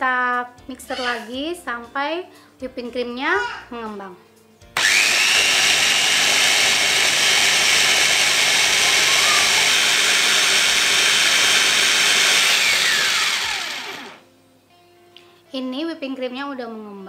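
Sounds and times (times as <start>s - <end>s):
food chopper motor whirring: 4.8s - 14.2s.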